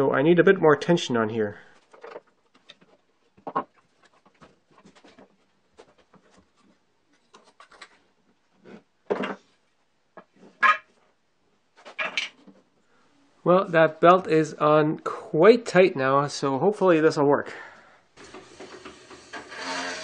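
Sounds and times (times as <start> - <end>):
wood and metal knocks and scrapes: 1.8 - 6.8, 8.6 - 9.5.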